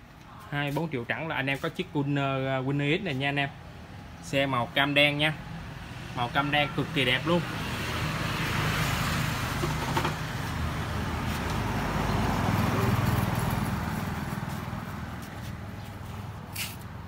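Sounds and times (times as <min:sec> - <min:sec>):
motor vehicle passing: 0:06.9 - 0:17.0.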